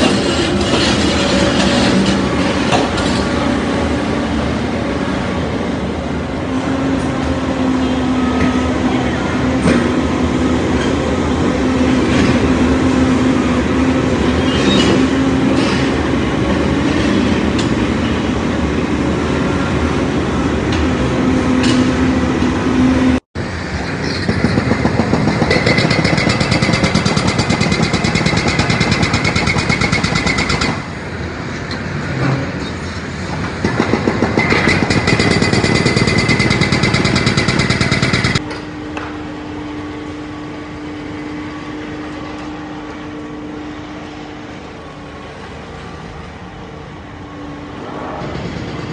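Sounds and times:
diesel engine running under load: 0:00.0 - 0:48.9
excavator diesel engine running: 0:00.0 - 0:48.9
hydraulic breaker hammer pounding: 0:24.0 - 0:31.0, 0:33.2 - 0:38.5.

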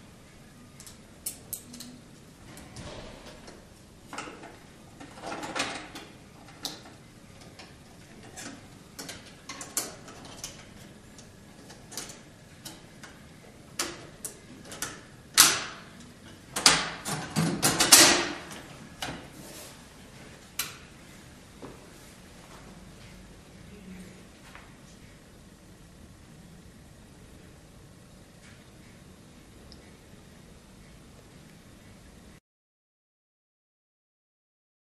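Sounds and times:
printer parts clicking and knocking: 0:16.6 - 0:19.2.

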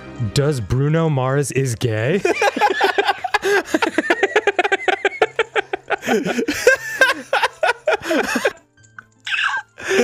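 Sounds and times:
person giggling: 0:02.6 - 0:08.6.

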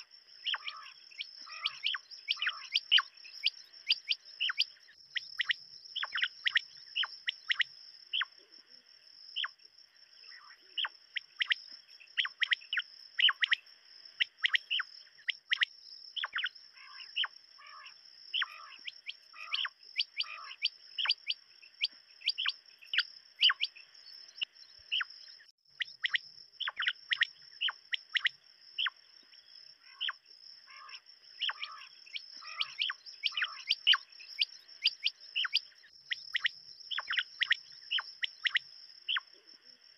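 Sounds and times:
quail calling: 0:00.0 - 0:04.8, 0:05.4 - 0:08.3, 0:12.2 - 0:13.6, 0:14.2 - 0:23.8, 0:29.8 - 0:39.3.

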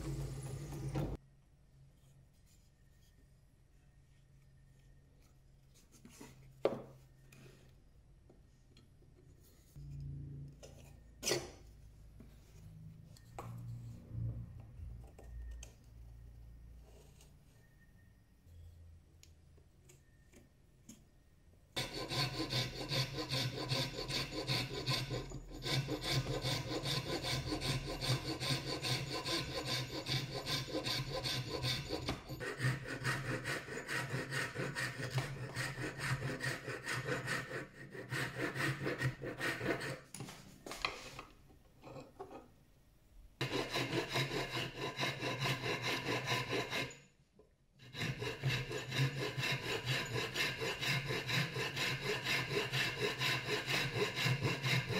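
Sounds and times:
hand file rasping on wood: 0:21.8 - 0:40.1, 0:43.4 - 0:47.0, 0:47.8 - 0:54.9.

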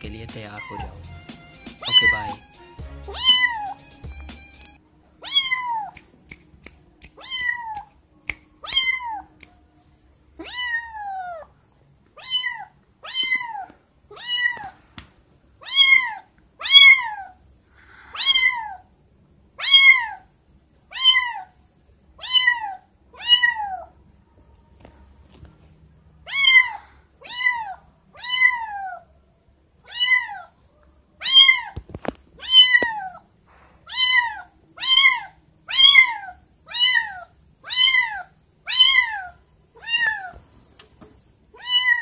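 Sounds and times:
kitten meowing: 0:00.5 - 0:01.1, 0:01.8 - 0:02.5, 0:03.1 - 0:03.9, 0:05.2 - 0:06.0, 0:07.1 - 0:07.9, 0:08.6 - 0:09.4, 0:10.4 - 0:11.5, 0:12.2 - 0:14.8, 0:15.6 - 0:17.4, 0:18.1 - 0:18.9, 0:19.6 - 0:20.2, 0:20.9 - 0:21.5, 0:22.2 - 0:23.9, 0:26.2 - 0:29.1, 0:29.8 - 0:30.5, 0:31.2 - 0:31.8, 0:32.4 - 0:33.2, 0:33.9 - 0:40.4, 0:41.6 - 0:42.0.

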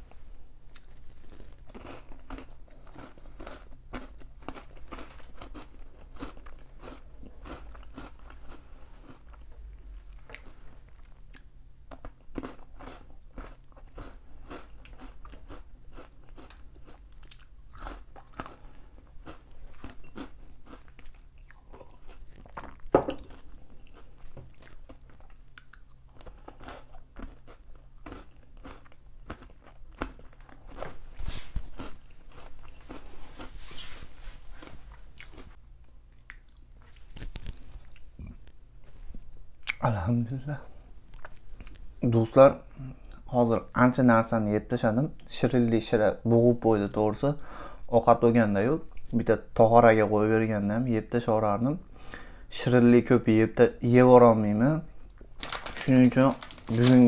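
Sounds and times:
person chewing crunchy snack: 0:00.7 - 0:33.6, 0:34.5 - 0:39.8, 0:55.1 - 0:57.0.

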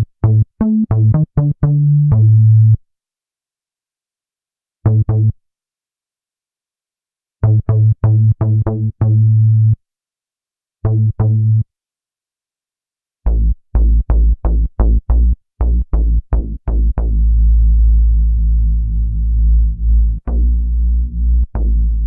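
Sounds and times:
synthesizer bass notes: 0:13.3 - 0:22.0.

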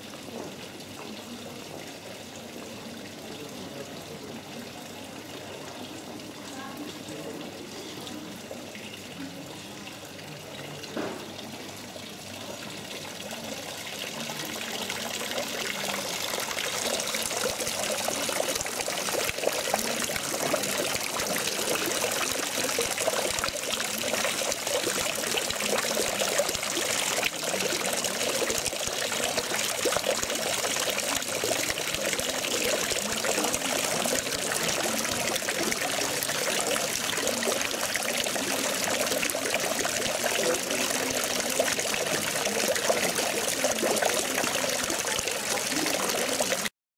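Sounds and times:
fountain water splashing: 0:12.6 - 0:46.7.

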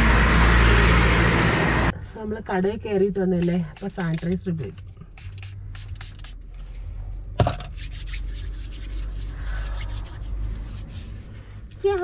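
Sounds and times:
hands rubbing together: 0:03.4 - 0:06.4, 0:07.7 - 0:12.0.

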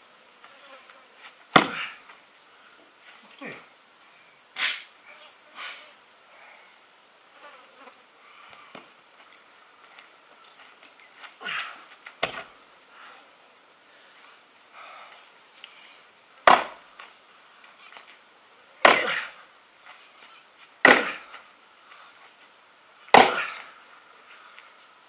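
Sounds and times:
axe chopping wood: 0:01.5 - 0:02.0, 0:11.6 - 0:12.5, 0:16.4 - 0:16.8, 0:18.8 - 0:19.3, 0:20.8 - 0:21.3, 0:23.1 - 0:23.6.

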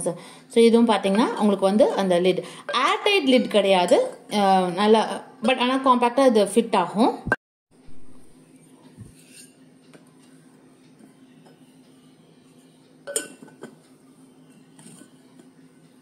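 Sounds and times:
bowls and lids clinking: 0:13.1 - 0:13.8.

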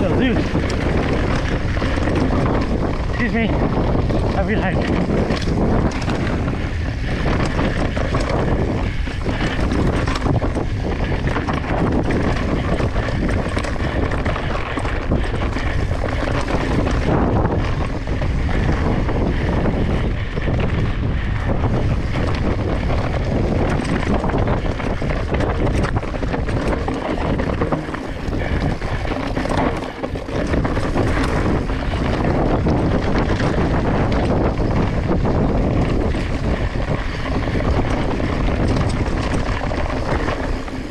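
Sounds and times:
bike tyres over dirt and stones: 0:00.0 - 0:40.9
wind rush on microphone: 0:00.0 - 0:40.9.

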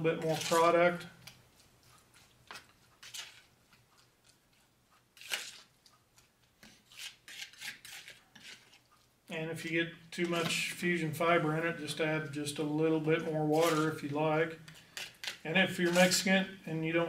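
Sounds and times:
palette knife scraping in plastic tub: 0:00.2 - 0:00.8, 0:06.6 - 0:08.8, 0:13.5 - 0:14.2, 0:15.0 - 0:16.3.

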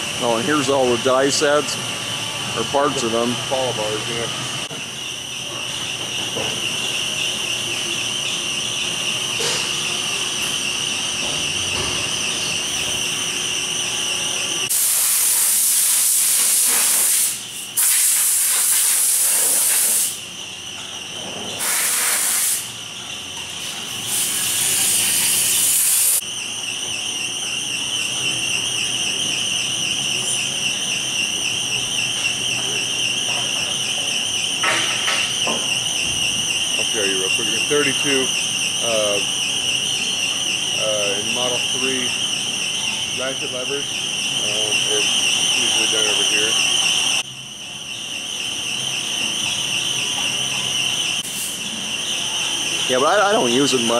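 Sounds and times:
high-pitched machine whine: 0:00.0 - 0:53.9
air blow gun hissing: 0:14.7 - 0:20.2, 0:21.6 - 0:22.8, 0:23.6 - 0:26.2, 0:51.2 - 0:51.7.

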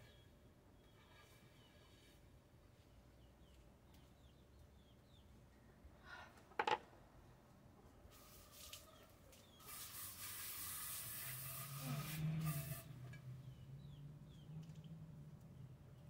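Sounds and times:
garden hose spraying: 0:08.1 - 0:13.0.

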